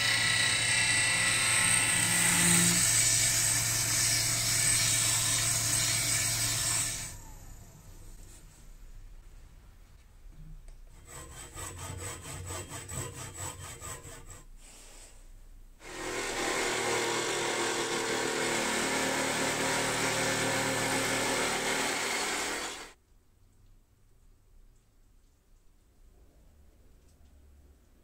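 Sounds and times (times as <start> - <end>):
power saw cutting wood: 0.0 - 7.3, 15.8 - 23.0.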